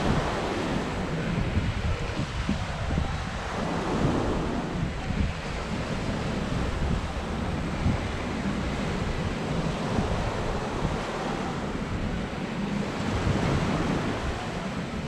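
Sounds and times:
sea waves on shore: 0.0s - 15.0s
wind buffeting microphone: 0.0s - 15.0s.

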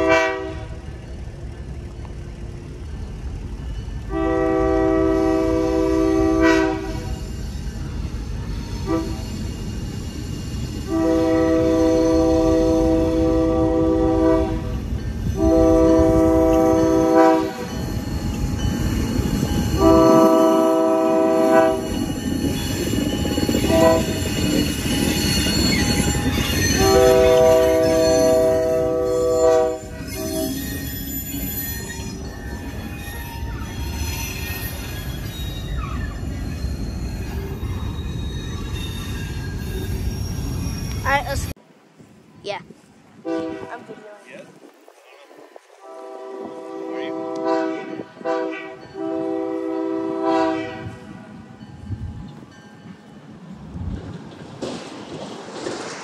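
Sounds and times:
locomotive horn blasts: 0.0s - 0.9s, 4.0s - 7.1s, 8.8s - 9.2s, 10.8s - 14.8s, 15.4s - 17.8s, 19.7s - 22.1s, 23.6s - 24.5s, 25.8s - 31.1s, 43.2s - 43.8s, 45.8s - 51.2s
locomotive engine rumble: 0.0s - 55.7s.

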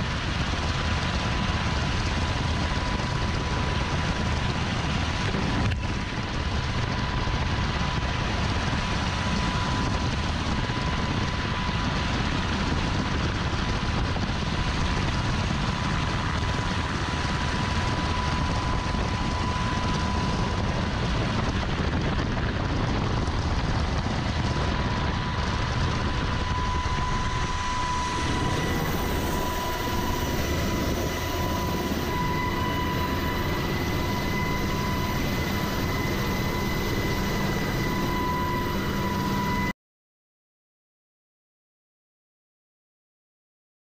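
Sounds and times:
helicopter rotors and engines: 0.0s - 39.8s
thin high whine: 26.4s - 39.7s.

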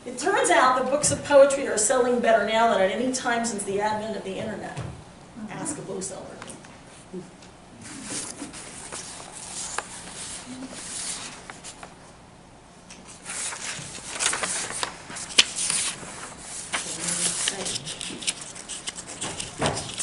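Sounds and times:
rustling and rubbing: 7.8s - 11.9s, 13.1s - 20.0s.

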